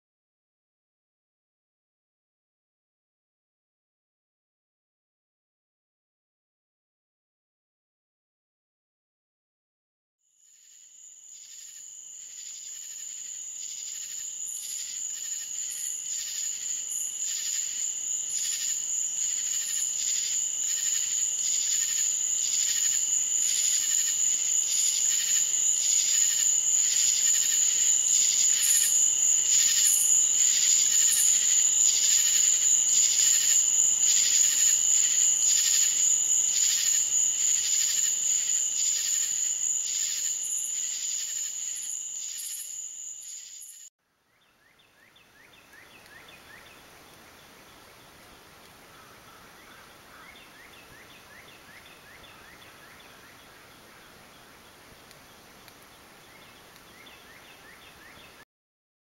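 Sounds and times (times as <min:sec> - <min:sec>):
insects trilling and chirping: 0:10.3 - 0:43.9, 0:45.0 - 0:58.4.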